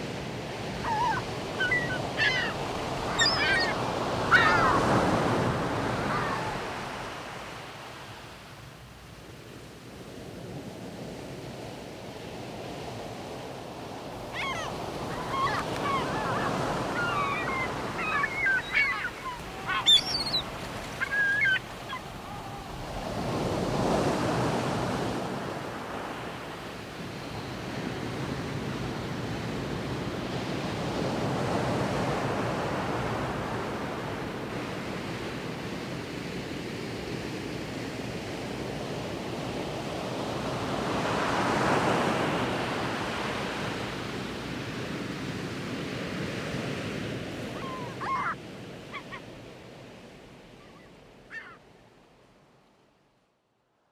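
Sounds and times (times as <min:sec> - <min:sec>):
birds calling short cries: 0:00.8 - 0:05.0, 0:14.4 - 0:22.7, 0:47.6 - 0:49.3, 0:50.6 - 0:51.6
sea waves washing onto rocks: 0:14.9 - 0:25.5.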